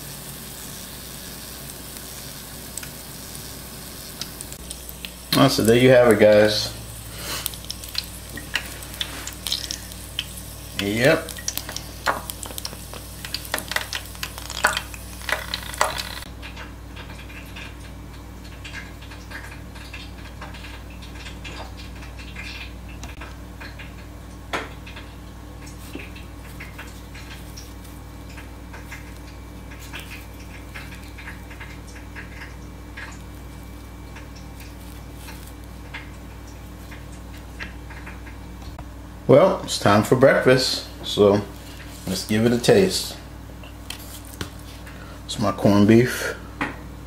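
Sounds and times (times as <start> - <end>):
oil sizzling in a deep fryer: 0.0 - 47.0
steady low hum: 0.0 - 47.0.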